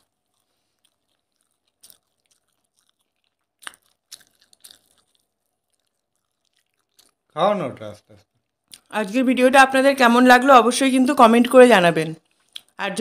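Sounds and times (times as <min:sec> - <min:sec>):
chewing clicks and smacks: 0:00.0 - 0:07.4, 0:08.2 - 0:08.9, 0:12.3 - 0:12.8.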